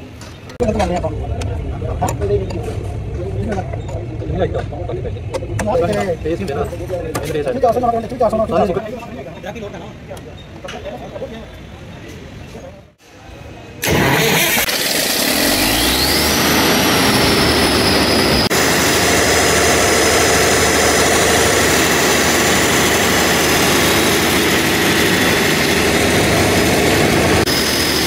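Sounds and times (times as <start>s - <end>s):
diesel generator engine running: 13.8s - 28.0s
rising whine: 13.8s - 28.0s.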